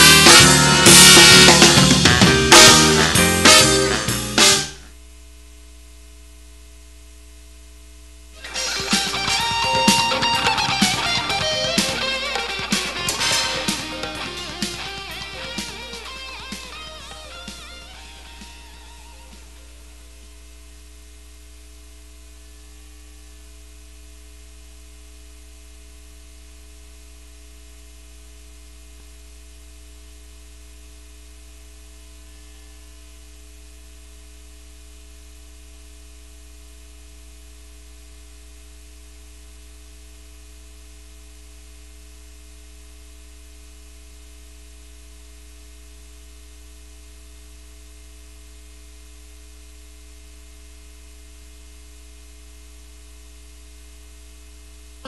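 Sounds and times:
electrical hum: 0:00.0 - 0:55.0.

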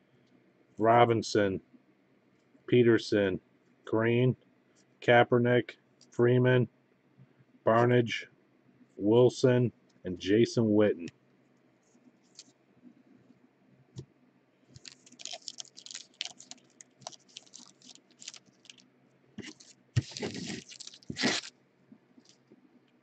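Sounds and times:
wrapper tearing: 0:14.8 - 0:18.8, 0:19.4 - 0:21.5
wrapper crinkling: 0:14.8 - 0:21.5, 0:22.2 - 0:22.5.

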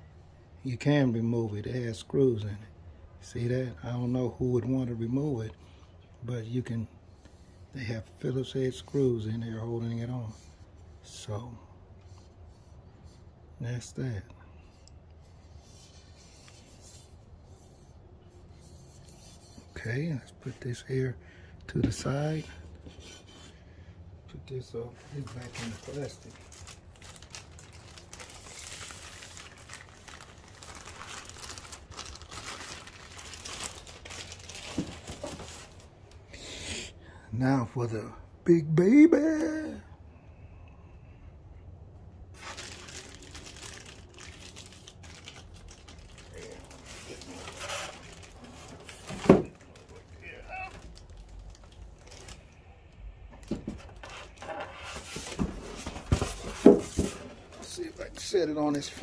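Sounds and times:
plastic bag crinkling: 0:25.0 - 0:35.9, 0:42.3 - 0:52.6.

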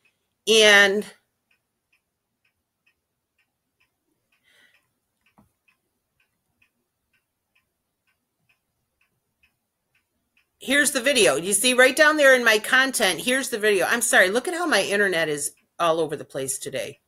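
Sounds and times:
faint regular ticking: 0:00.0 - 0:17.0.

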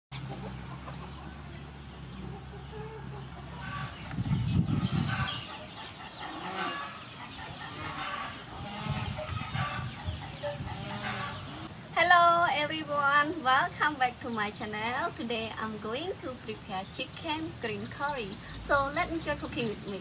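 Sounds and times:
chickens clucking: 0:00.1 - 0:11.9.

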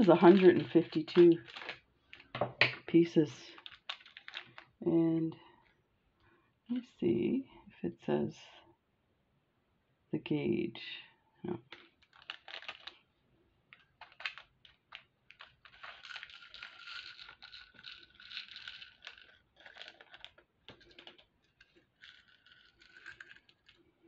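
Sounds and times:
small metal rings clicking: 0:00.0 - 0:02.4, 0:03.6 - 0:04.7, 0:13.8 - 0:23.9
plastic bag crinkling: 0:00.0 - 0:02.8, 0:03.4 - 0:04.8, 0:11.6 - 0:13.1, 0:13.7 - 0:24.0.

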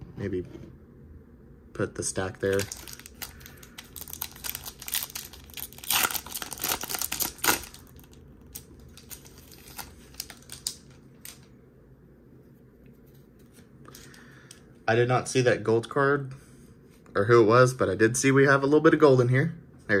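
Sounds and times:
foil wrapper tearing and crinkling: 0:02.4 - 0:11.4.

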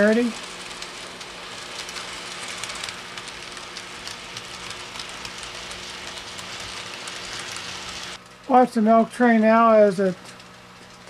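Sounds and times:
model train rolling hiss: 0:00.0 - 0:08.2
metal wheels clicking over rail joints: 0:00.0 - 0:11.0.

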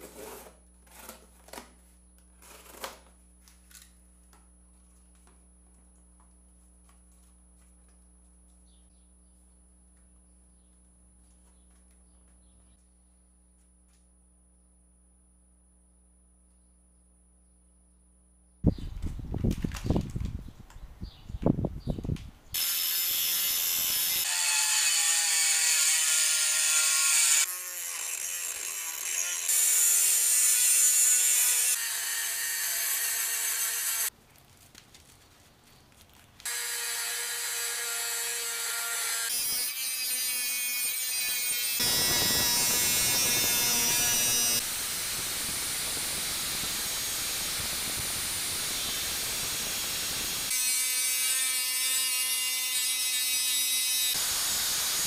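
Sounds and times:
angle grinder cutting steel: 0:22.6 - 0:34.1, 0:36.5 - 0:55.0
power drill whining: 0:41.8 - 0:50.6.

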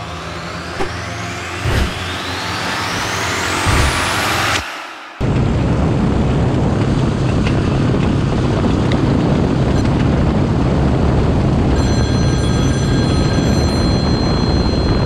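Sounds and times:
high whine: 0:00.0 - 0:10.6
wind rush on microphone: 0:03.3 - 0:15.0.

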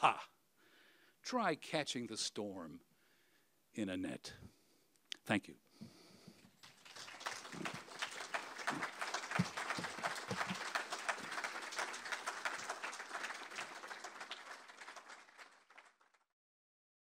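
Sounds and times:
audience applauding: 0:06.5 - 0:16.2.

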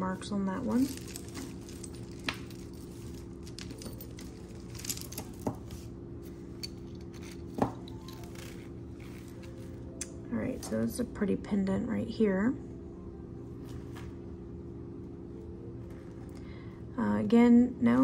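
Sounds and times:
jewelry clicking and clinking: 0:00.0 - 0:09.8
steady low hum: 0:00.0 - 0:18.0.

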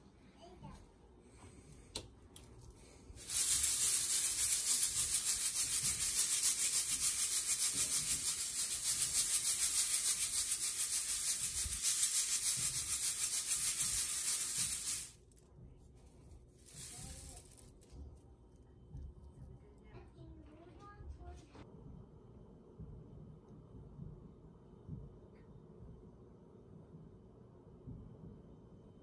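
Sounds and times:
coffee beans rattling in wire drum: 0:03.2 - 0:15.2, 0:16.6 - 0:17.8.

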